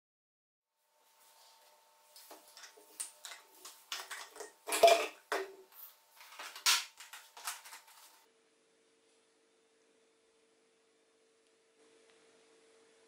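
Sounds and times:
plastic bottles clattering on table: 2.6s - 5.6s, 6.2s - 8.2s.

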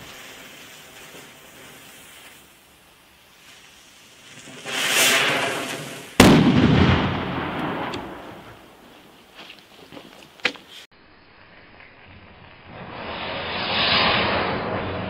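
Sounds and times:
firecracker bang: 4.3s - 8.7s.

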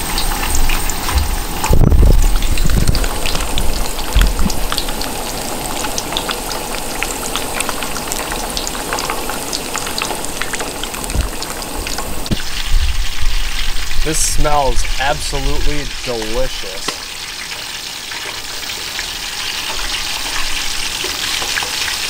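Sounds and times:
fish frying in hot oil: 0.0s - 22.0s
low rumbles: 0.4s - 16.6s.

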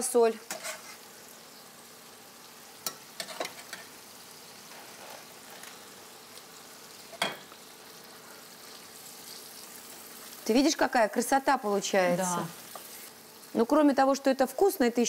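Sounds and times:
sauce sizzling in a pan: 0.0s - 15.0s.

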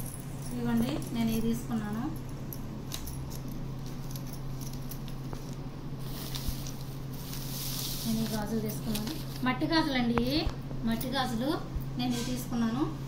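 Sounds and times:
glass bangles clinking: 0.0s - 9.2s
newspaper crinkling: 3.9s - 9.6s.

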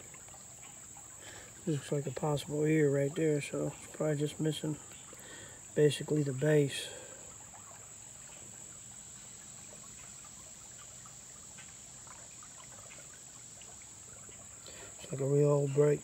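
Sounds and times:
creek water trickling: 0.0s - 16.0s
insects chorus: 0.0s - 16.0s.

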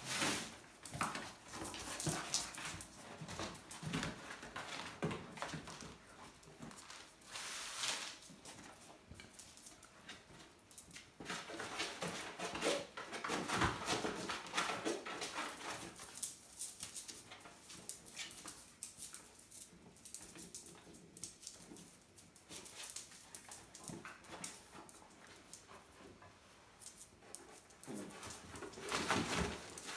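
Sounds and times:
puppies scratching cardboard: 11.0s - 19.2s, 20.1s - 29.9s.

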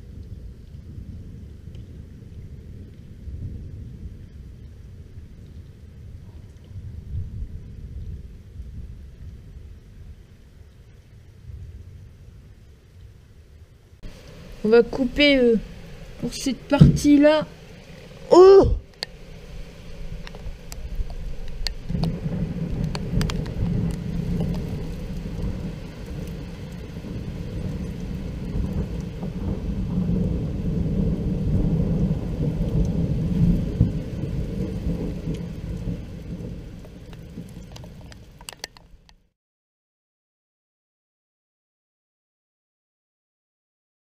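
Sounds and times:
rolling thunder: 0.0s - 10.2s, 14.0s - 38.5s.

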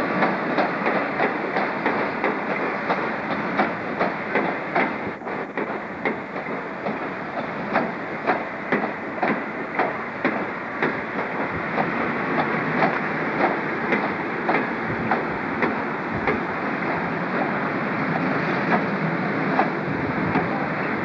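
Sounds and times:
train rumble: 0.0s - 21.0s
train wheels clicking over rail joints: 0.0s - 21.0s.

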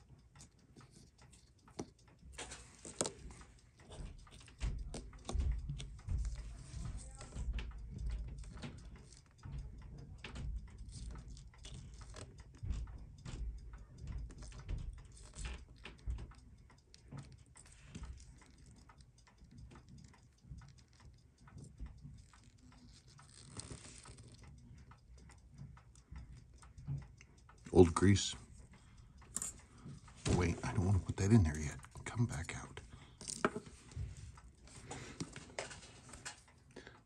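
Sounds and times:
tweezers clicking on metal parts: 0.0s - 28.1s, 28.7s - 30.2s
soft rustle: 22.0s - 24.6s.

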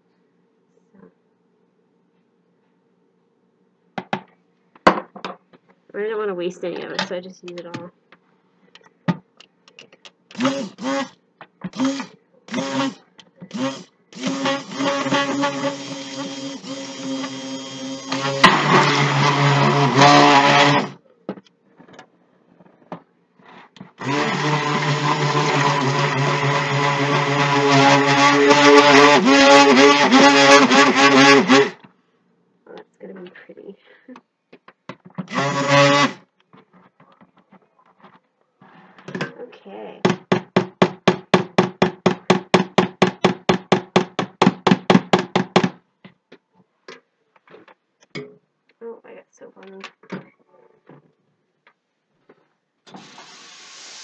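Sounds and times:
stick blender motor running: 10.3s - 21.0s, 23.9s - 31.8s, 35.2s - 36.3s.

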